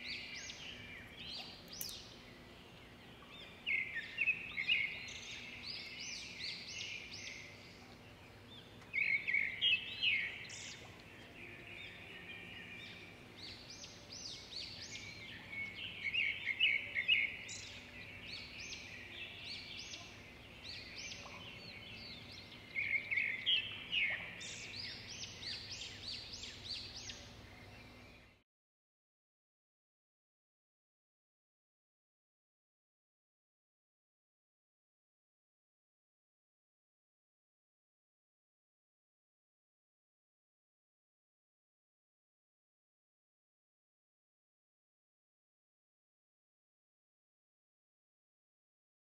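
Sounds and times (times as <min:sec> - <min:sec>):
small birds chirping: 0:00.0 - 0:28.4.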